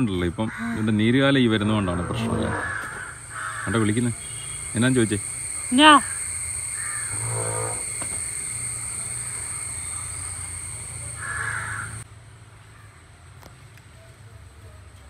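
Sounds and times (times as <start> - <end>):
low hum: 0.9 - 12.0
high whine: 1.4 - 12.0.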